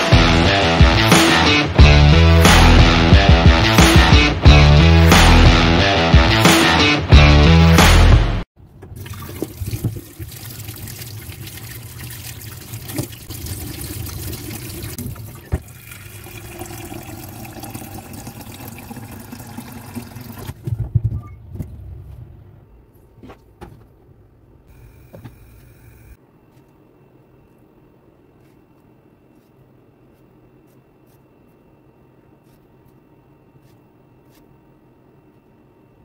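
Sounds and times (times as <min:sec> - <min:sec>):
tap water running into pot: 0:09.0 - 0:20.5.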